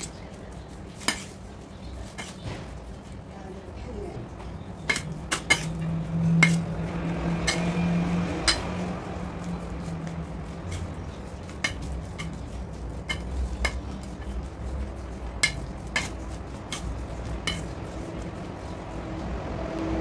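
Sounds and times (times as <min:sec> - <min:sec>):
spoon stirring minced meat: 0:00.0 - 0:03.3, 0:04.4 - 0:19.0
spoon clinking on metal bowl: 0:00.9 - 0:01.4, 0:04.8 - 0:06.7, 0:07.4 - 0:07.8, 0:08.4 - 0:08.8, 0:10.7 - 0:14.5, 0:15.2 - 0:18.0.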